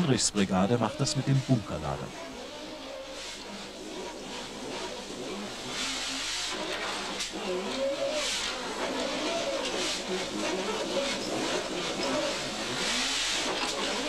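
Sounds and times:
steady rushing hiss: 0:00.0 - 0:07.3.

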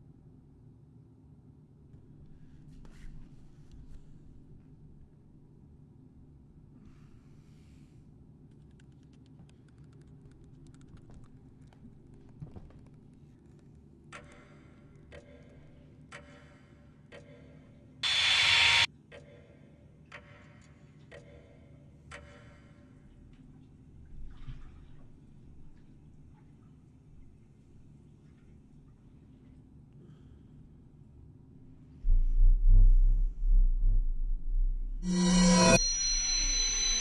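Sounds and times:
clock-like ticks: 0:14.2 - 0:17.4, 0:20.1 - 0:22.7
harsh burst of noise: 0:18.0 - 0:18.9
low steady hum: 0:23.2 - 0:37.0.

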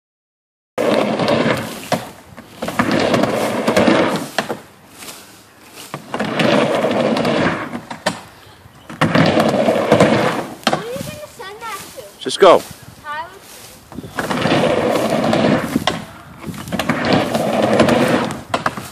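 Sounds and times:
skateboard clacks: 0:00.8 - 0:04.6, 0:05.9 - 0:08.3, 0:08.9 - 0:10.9, 0:14.2 - 0:18.9
skateboard wheels rolling on wood: 0:00.8 - 0:18.9.

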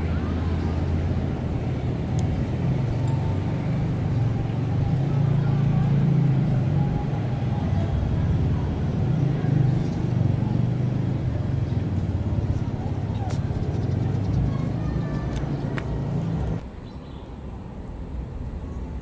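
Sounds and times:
train wheels rumbling on rails: 0:08.2 - 0:16.6.

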